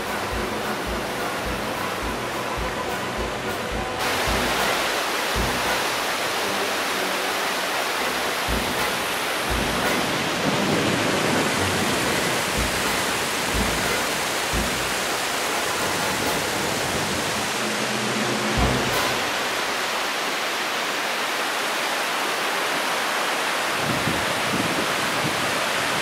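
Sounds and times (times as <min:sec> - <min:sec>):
short low bumps: 0:00.0 - 0:06.1, 0:08.0 - 0:19.8
stream cascading over rocks: 0:00.0 - 0:26.0.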